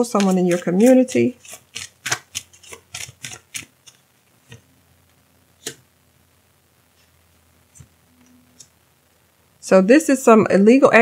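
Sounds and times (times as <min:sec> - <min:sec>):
cards clicking and tapping on table: 0:00.2 - 0:04.6.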